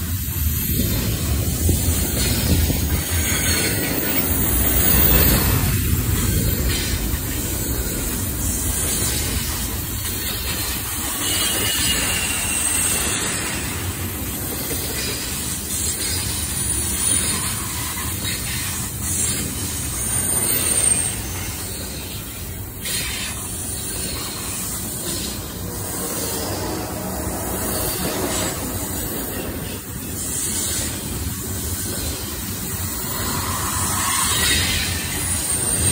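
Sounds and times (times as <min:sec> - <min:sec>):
steel wheels rumbling on rail: 0:00.0 - 0:35.9
high wheel squeals: 0:00.7 - 0:15.4, 0:16.0 - 0:29.8.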